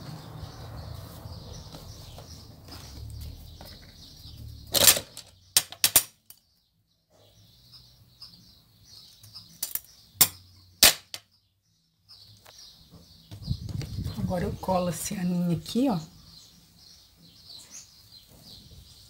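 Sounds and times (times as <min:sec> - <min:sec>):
faint high chirping: 0:06.4 - 0:14.3.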